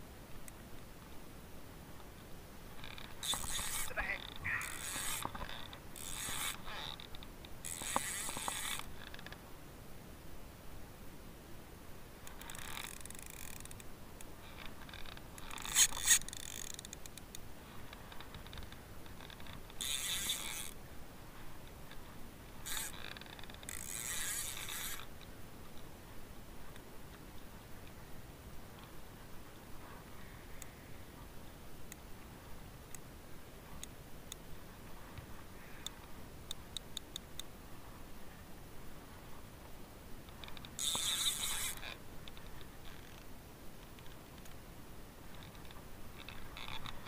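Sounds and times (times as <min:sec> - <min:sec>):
spinning reel cranking: 0:02.8 - 0:07.0, 0:07.6 - 0:09.2, 0:12.4 - 0:13.8, 0:15.4 - 0:17.0, 0:19.8 - 0:20.8, 0:22.6 - 0:25.1, 0:40.8 - 0:41.9.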